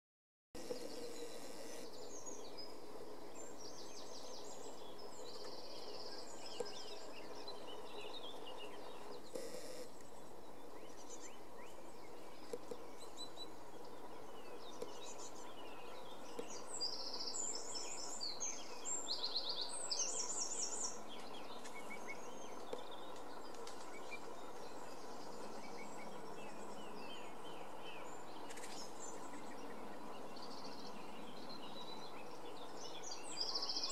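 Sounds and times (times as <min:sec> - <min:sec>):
faint steady hum: 0:00.6 - 0:33.9
songbirds chirping and trilling: 0:00.6 - 0:33.9.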